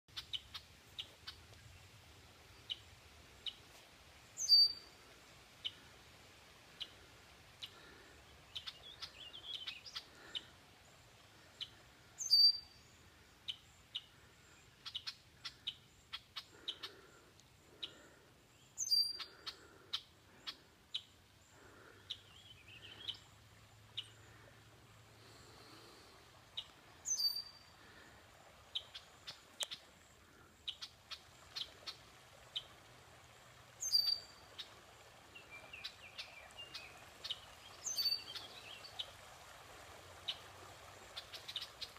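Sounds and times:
birds chirping: 0:07.6 - 0:23.3, 0:25.2 - 0:29.8.

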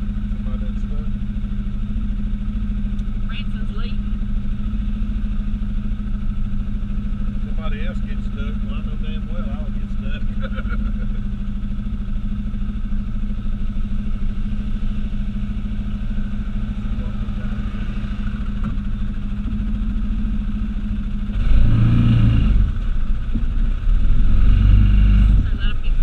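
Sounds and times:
vehicle engine revving: 0:00.0 - 0:26.0.

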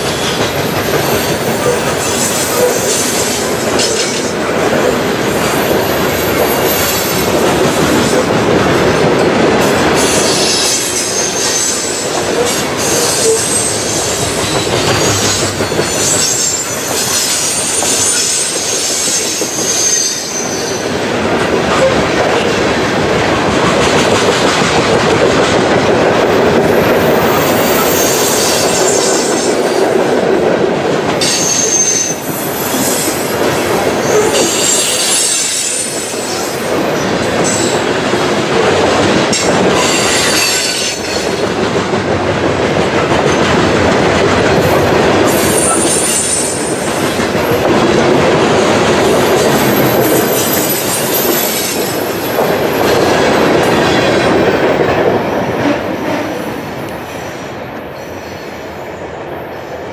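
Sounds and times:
train wheels rumbling on rails: 0:00.0 - 0:59.9
high wheel squeals: 0:34.0 - 0:36.4.

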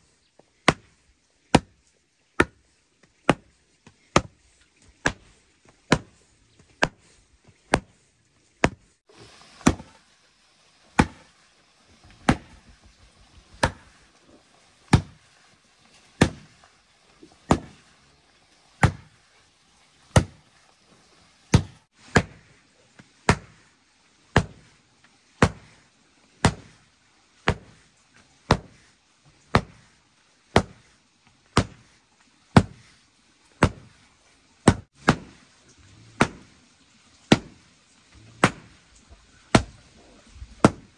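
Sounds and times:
wooden rammer thudding on dirt: 0:07.7 - 0:08.0, 0:08.6 - 0:08.9, 0:40.6 - 0:40.9.

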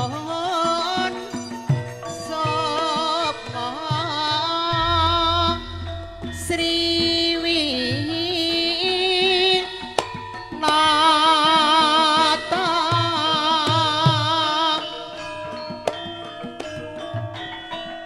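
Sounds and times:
hand drum strokes: 0:02.8 - 0:10.1
wavering melody line: 0:04.5 - 0:08.6.

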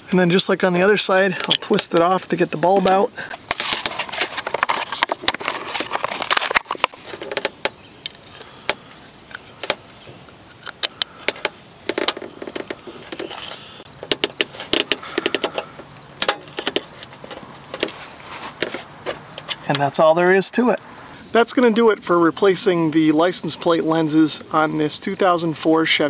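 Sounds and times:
plastic clicks and rustles: 0:02.9 - 0:19.9
plastic blister package crinkling: 0:03.2 - 0:15.7.

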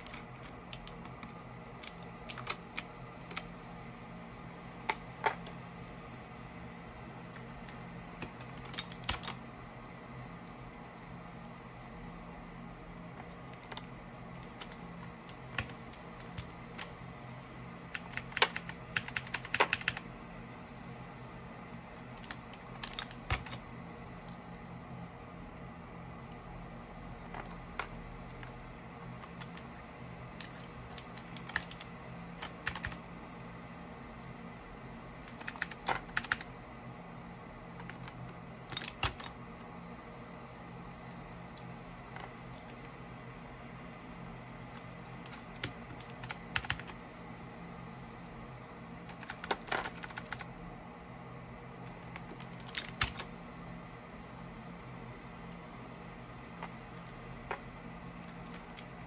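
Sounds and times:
mechanical keyboard keys clacking: 0:00.0 - 0:03.5, 0:07.4 - 0:09.4, 0:13.2 - 0:17.1, 0:17.8 - 0:20.1, 0:22.1 - 0:25.0, 0:29.2 - 0:33.0, 0:35.2 - 0:36.5, 0:37.7 - 0:39.4, 0:44.8 - 0:47.0, 0:49.0 - 0:50.5, 0:51.9 - 0:53.4.

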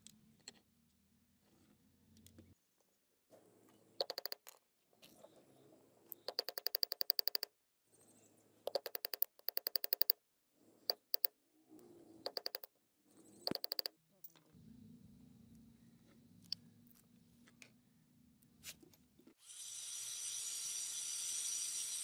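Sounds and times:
small hammer tapping steel pin: 0:04.0 - 0:04.4, 0:06.2 - 0:07.5, 0:08.7 - 0:10.2, 0:12.3 - 0:12.7, 0:13.5 - 0:13.9.

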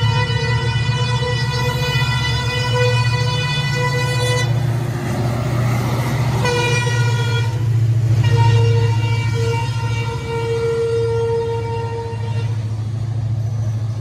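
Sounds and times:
train horn blasts: 0:00.0 - 0:04.7, 0:06.3 - 0:12.7
train rumbling: 0:00.0 - 0:14.0.

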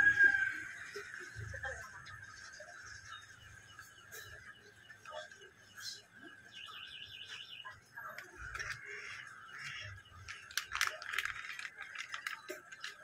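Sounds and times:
plastic parts clicking: 0:08.1 - 0:13.0
plastic bag crinkling: 0:10.1 - 0:13.0.

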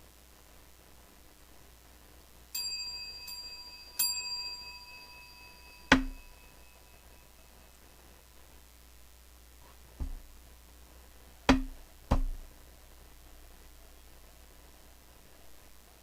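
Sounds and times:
ring bell ringing: 0:02.6 - 0:07.8.

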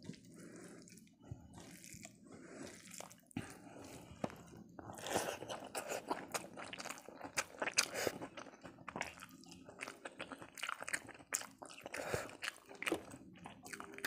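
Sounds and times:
fingers squishing rice: 0:00.0 - 0:09.5
chewing and mouth sounds: 0:00.0 - 0:14.0.

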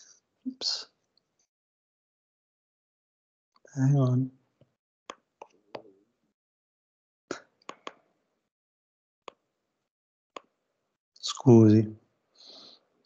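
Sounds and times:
computer mouse clicks: 0:07.7 - 0:08.0.

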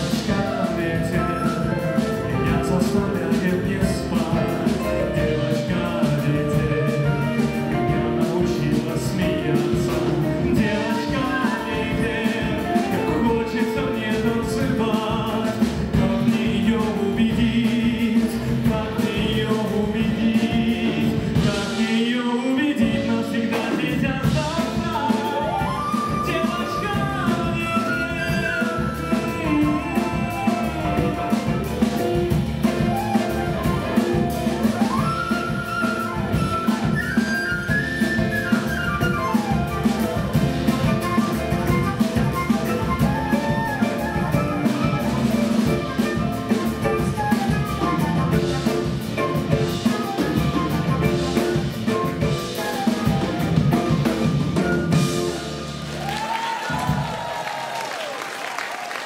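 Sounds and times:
man singing: 0:00.0 - 0:55.2
live band playing: 0:00.0 - 0:59.0.

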